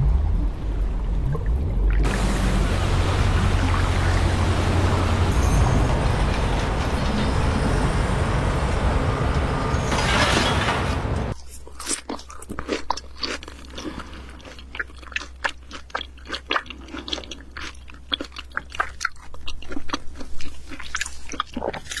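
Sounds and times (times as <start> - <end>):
mouth chewing and crunching food: 11.4 - 22.0.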